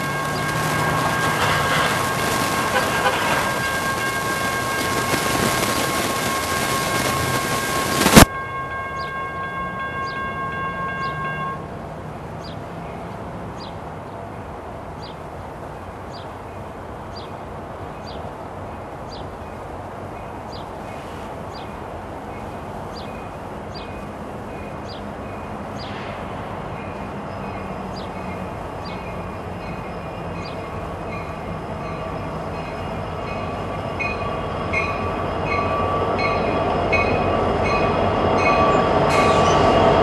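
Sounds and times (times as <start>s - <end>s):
loud hiss: 0.0s - 8.3s
distant locomotive horn chord: 0.0s - 11.7s
crossing bell pinging: 0.0s - 11.8s, 26.8s - 40.0s
low rumble of train: 0.0s - 40.0s.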